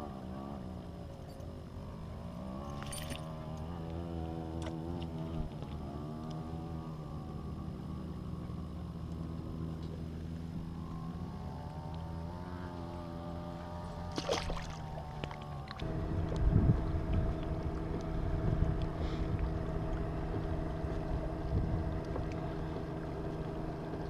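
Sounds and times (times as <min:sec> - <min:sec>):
motorboat engine running: 0:00.0 - 0:24.0
water splash: 0:14.0 - 0:15.8.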